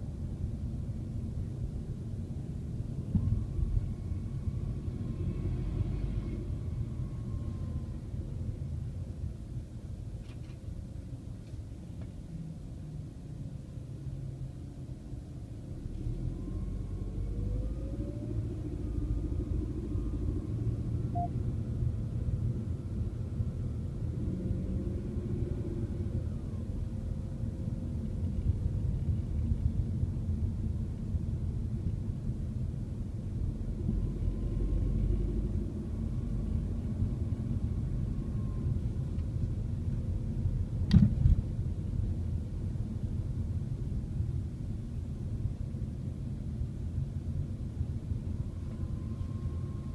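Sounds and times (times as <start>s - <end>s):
road and engine rumble in car: 0.0s - 49.9s
short beep: 21.1s - 21.4s.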